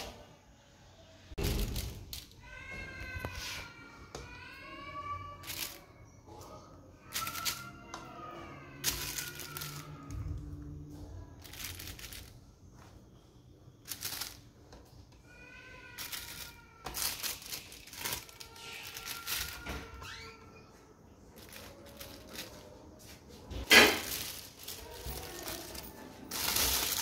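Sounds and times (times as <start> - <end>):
paper crinkling and rustling: 1.4 - 3.7, 5.4 - 5.8, 7.1 - 7.8, 8.8 - 12.4, 13.8 - 14.6, 15.9 - 20.3, 21.3 - 27.0.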